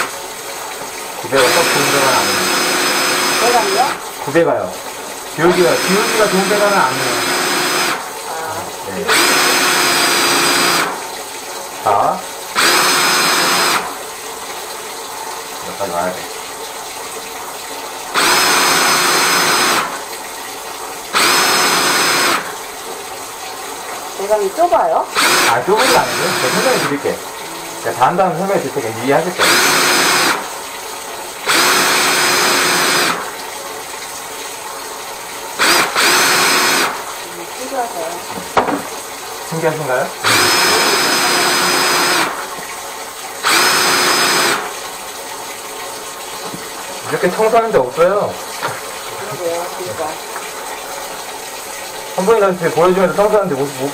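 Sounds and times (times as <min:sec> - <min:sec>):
electric motor whining: 0:01.3 - 0:04.0, 0:05.4 - 0:11.0, 0:12.6 - 0:13.9, 0:18.2 - 0:19.9, 0:25.1 - 0:28.2, 0:29.4 - 0:30.5, 0:31.5 - 0:33.2, 0:35.6 - 0:37.0, 0:40.2 - 0:42.4, 0:43.4 - 0:44.7.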